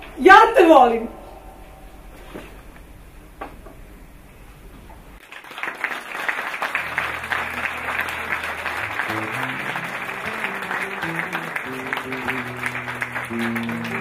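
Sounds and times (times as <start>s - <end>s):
audience clapping: 5.2s - 14.0s.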